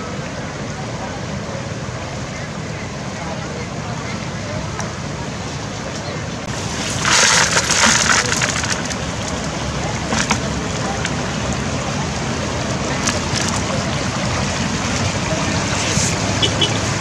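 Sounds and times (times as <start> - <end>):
floodwater rushing: 0.0 - 17.0
water splashing into bucket: 6.5 - 11.7, 12.7 - 16.4.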